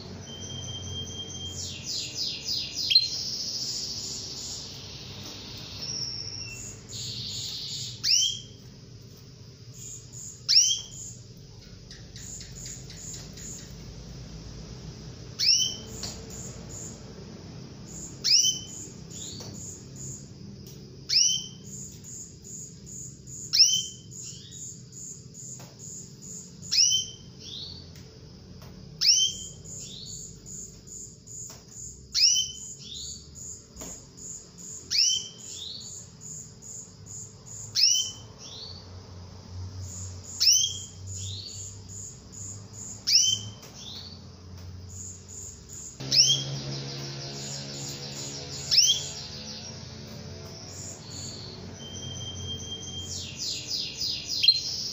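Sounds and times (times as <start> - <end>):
canary call notes: 0.0 - 8.7, 9.8 - 13.9, 15.3 - 17.0, 17.9 - 20.1, 25.5 - 27.8, 29.0 - 30.7, 34.2 - 36.0, 37.5 - 38.8, 39.9 - 44.2, 44.9 - 54.9.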